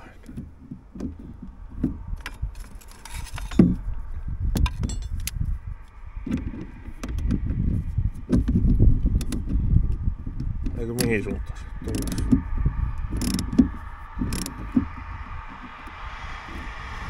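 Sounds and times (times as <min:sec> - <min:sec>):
low rumble: 0:00.0 - 0:17.0
ratchet clicks: 0:11.8 - 0:12.4, 0:13.0 - 0:15.0.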